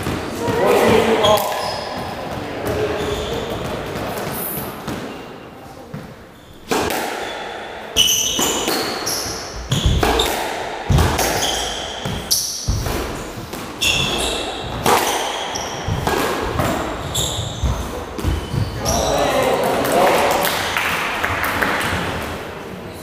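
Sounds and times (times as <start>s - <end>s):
shoe squeaks on wooden floor: 2.8s - 5.5s, 6.2s - 6.7s, 8.0s - 10.3s, 11.2s - 19.1s
squash ball cracking off rackets: 8.3s - 18.7s.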